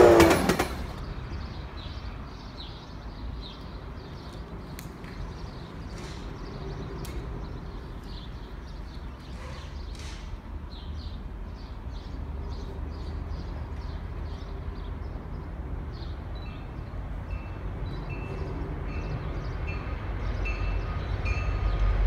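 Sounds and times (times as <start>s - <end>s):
bird chirping: 0.0s - 22.0s.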